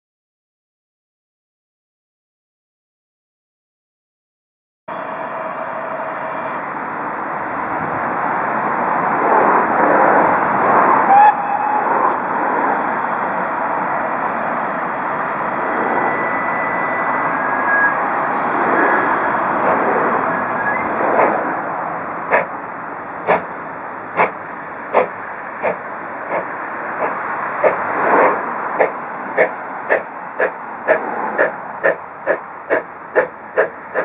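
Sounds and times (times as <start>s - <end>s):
steam locomotive exhaust: 11.0s - 12.0s, 15.6s - 34.0s.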